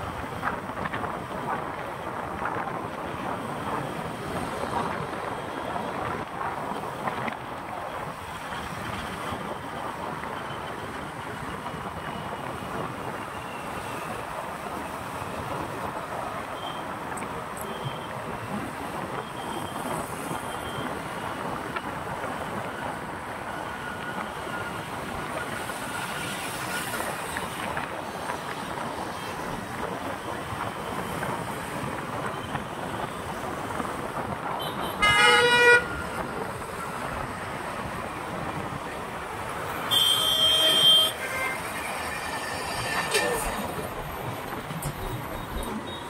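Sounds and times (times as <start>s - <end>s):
road traffic noise: 0.0s - 46.0s
vehicle horn honks: 34.7s - 36.0s, 39.9s - 41.6s.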